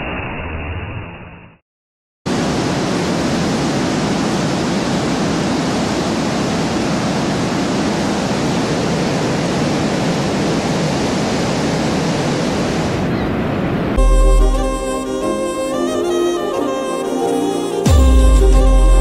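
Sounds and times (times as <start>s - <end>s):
waterfall rushing: 2.3s - 13.0s.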